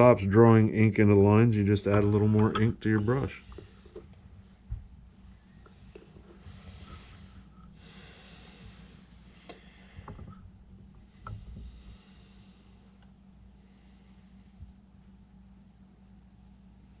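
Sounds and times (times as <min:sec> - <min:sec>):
steady low hum: 0:00.0 - 0:17.0
breathing through the nose: 0:06.3 - 0:10.3, 0:11.0 - 0:13.0.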